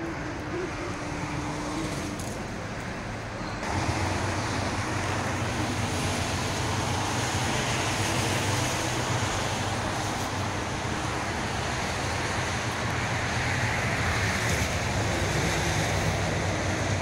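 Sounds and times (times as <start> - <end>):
low engine hum: 0.0 - 17.0
tyre hiss on wet road: 3.6 - 17.0.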